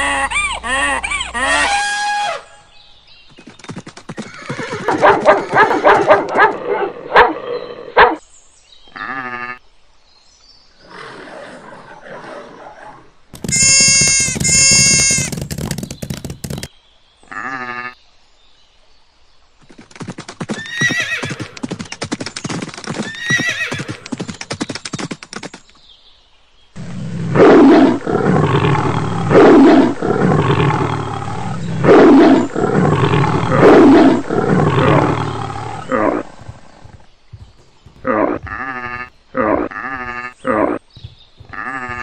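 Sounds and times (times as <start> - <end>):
horse whinnying: 4.2 - 5.2, 11.0 - 15.5, 20.6 - 21.5, 23.0 - 24.1, 38.0 - 40.8
goat bleating: 13.4 - 15.3, 38.0 - 40.4
big cat roaring: 26.8 - 36.8.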